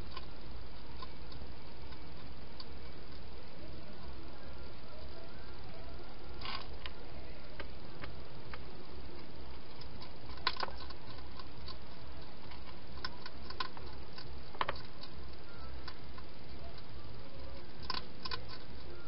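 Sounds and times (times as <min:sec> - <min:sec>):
steady low hum: 0:00.0 - 0:19.0
hedgehog chewing and knocking bowl: 0:09.6 - 0:16.3.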